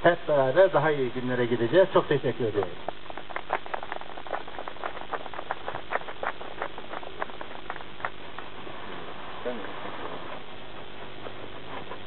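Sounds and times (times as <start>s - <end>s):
people clapping: 2.4s - 8.6s.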